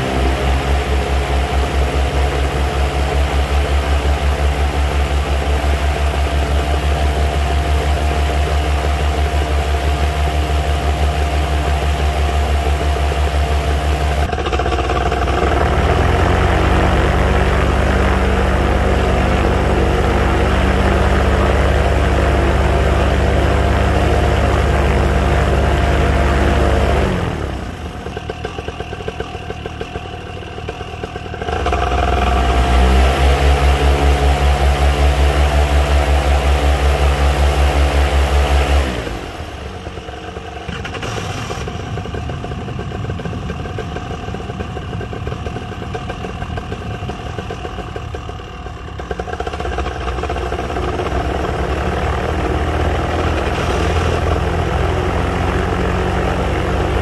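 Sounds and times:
paramotor engine revving: 0:00.0 - 0:57.0.

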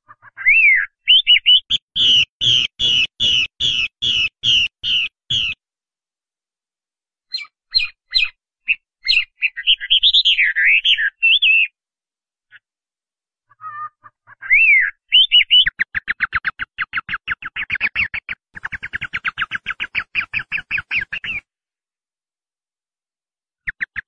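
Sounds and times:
songbird singing: 0:00.0 - 0:05.6, 0:07.3 - 0:11.8, 0:13.5 - 0:21.5.

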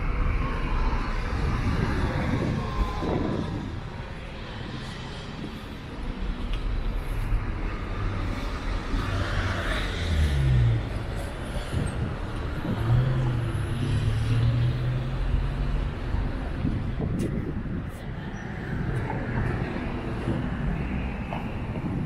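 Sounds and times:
cars passing at low speed: 0:00.0 - 0:22.0.

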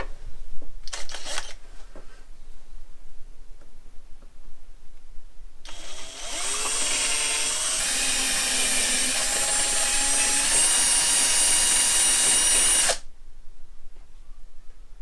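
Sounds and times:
power drill running: 0:05.7 - 0:13.0.

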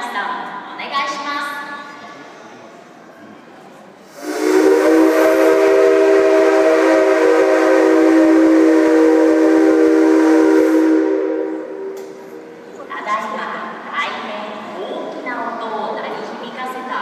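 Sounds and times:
steam locomotive whistle: 0:04.1 - 0:12.2.

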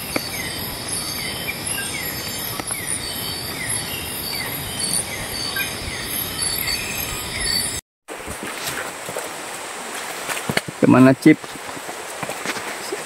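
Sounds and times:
insects trilling: 0:00.0 - 0:07.8
steady rain falling: 0:08.5 - 0:13.0.

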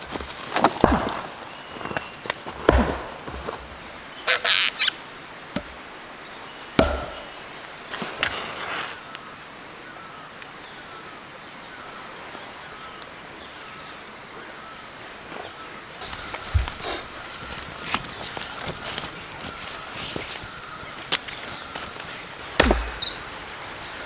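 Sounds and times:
firewood rustling scrapes: 0:00.0 - 0:04.9, 0:07.9 - 0:09.0, 0:15.3 - 0:22.4
bird chirping: 0:06.2 - 0:07.7, 0:16.5 - 0:24.0
sharp knock: 0:06.8 - 0:07.4.

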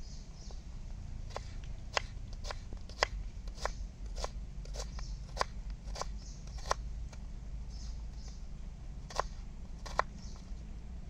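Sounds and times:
knife slicing onion on board: 0:01.3 - 0:06.8, 0:09.1 - 0:10.1.

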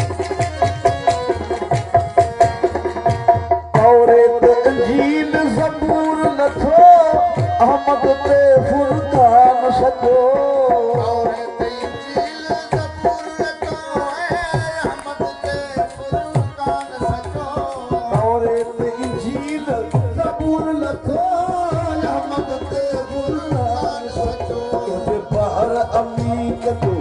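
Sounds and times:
tabla playing: 0:00.0 - 0:27.0
person singing ornamented lines: 0:03.7 - 0:27.0.

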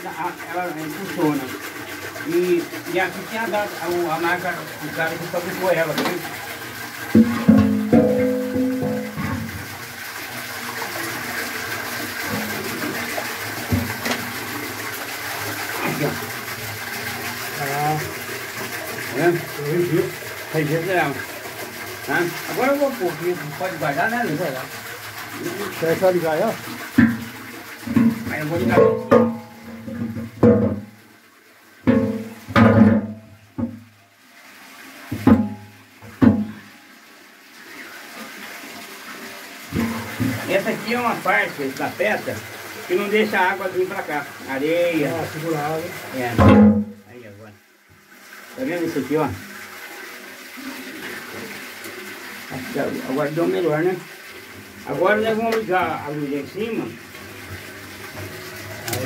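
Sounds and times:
water rushing through turbine: 0:00.0 - 0:29.4
sharp ringing knocks: 0:07.2 - 0:09.6, 0:28.8 - 0:30.9, 0:31.9 - 0:33.8, 0:46.4 - 0:47.0.

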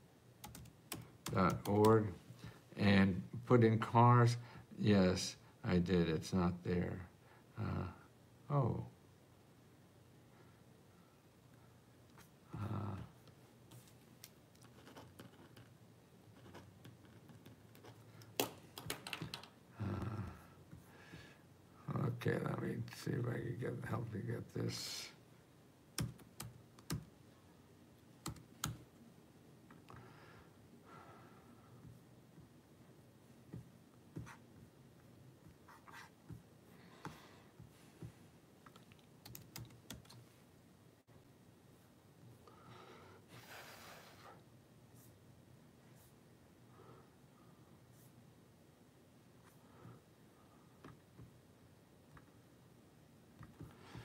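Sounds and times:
computer keyboard keystrokes: 0:00.4 - 0:02.0, 0:18.2 - 0:19.5, 0:26.0 - 0:27.1, 0:28.2 - 0:28.8, 0:38.6 - 0:40.2.

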